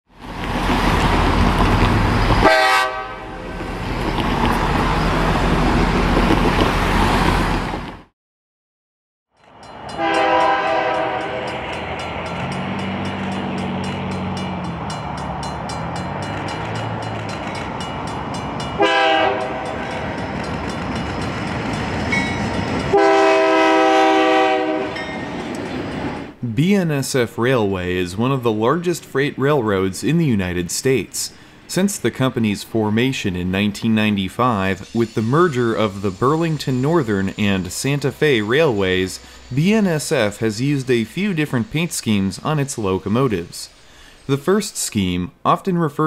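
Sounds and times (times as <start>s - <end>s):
diesel train engine noise: 0.2s - 8.1s, 9.4s - 45.0s
locomotive air horn blasts: 2.4s - 3.6s, 10.0s - 11.6s, 18.8s - 20.0s, 22.9s - 25.0s.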